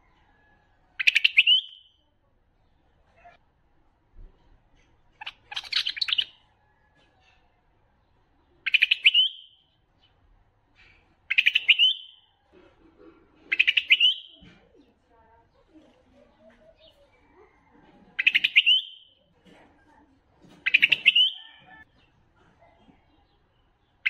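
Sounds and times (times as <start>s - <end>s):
bird warbling song: 1.0s - 1.9s, 5.1s - 6.5s, 8.4s - 10.2s, 10.8s - 12.4s, 13.5s - 15.0s, 18.2s - 19.2s, 20.6s - 22.1s
faint bird twittering: 5.1s - 7.3s, 8.4s - 10.2s, 10.8s - 12.5s, 13.5s - 19.2s.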